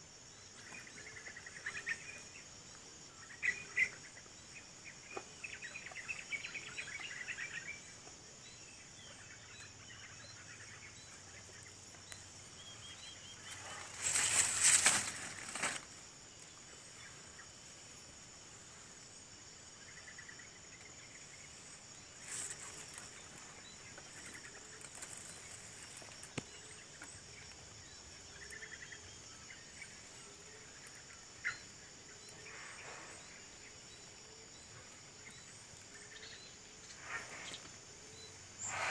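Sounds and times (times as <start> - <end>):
high-pitched insect chorus: 0.0 - 38.9
short bird calls: 38.6 - 38.9.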